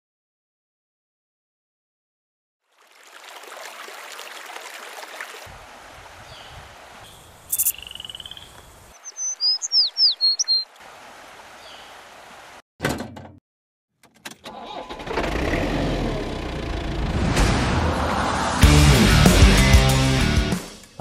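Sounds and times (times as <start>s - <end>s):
flowing river water: 2.6s - 12.6s
bird chirping: 6.2s - 10.8s, 11.6s - 12.0s.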